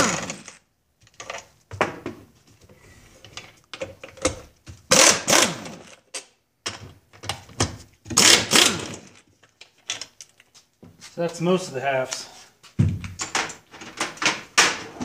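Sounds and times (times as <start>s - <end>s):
impact driver bursts: 4.9s - 6.0s, 8.1s - 9.2s.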